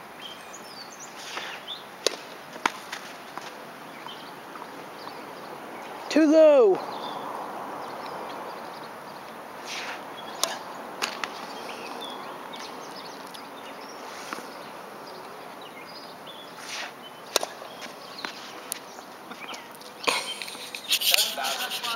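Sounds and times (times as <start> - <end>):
outdoor background noise: 0.0 - 21.9
rackets striking tennis ball: 2.0 - 3.6, 10.4 - 11.4, 17.3 - 19.4
tennis ball bouncing on court: 17.3 - 18.4.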